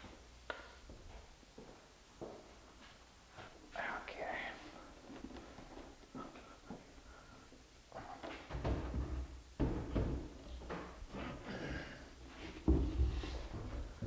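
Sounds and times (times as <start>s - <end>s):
wooden knocks and thuds: 8.4s - 11.0s, 12.6s - 14.0s.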